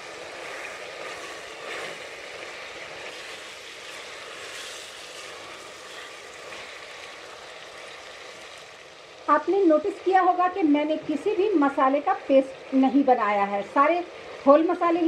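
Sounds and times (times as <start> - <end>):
spatula stirring in a pot: 0.0 - 8.6
meat and tomatoes sizzling in oil: 0.0 - 15.0.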